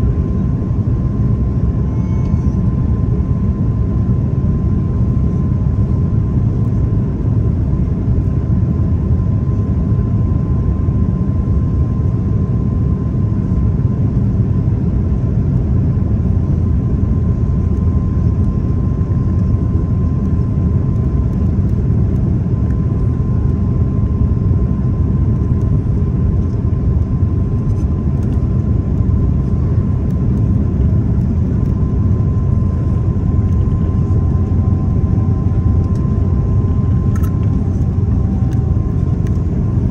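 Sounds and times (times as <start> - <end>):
jet engine and airflow rumble: 0.0 - 39.9
faint high tone: 1.8 - 2.6.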